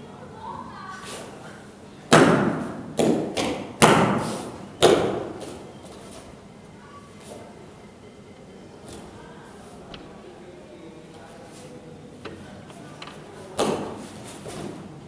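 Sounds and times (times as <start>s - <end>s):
sharp slaps and stamps: 2.1s - 4.2s.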